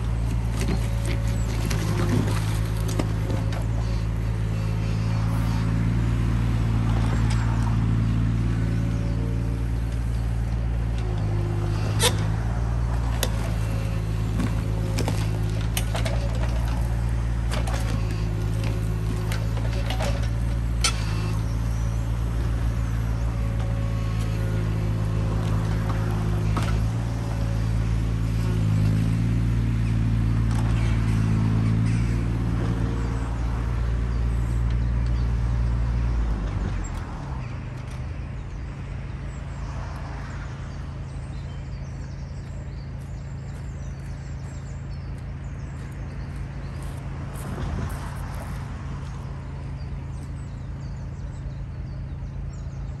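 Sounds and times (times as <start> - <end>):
excavator diesel engine running: 0.0 - 39.3.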